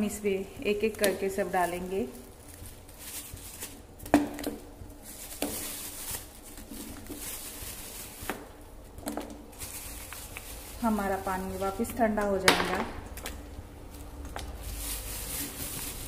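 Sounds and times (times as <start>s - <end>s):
gooseberries plopping into boiling water: 11.8s - 13.4s.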